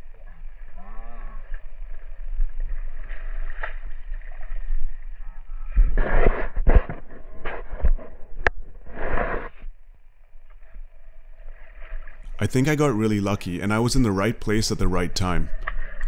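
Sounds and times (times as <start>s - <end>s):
water sloshing and splashing: 0.0s - 6.0s, 10.2s - 16.0s.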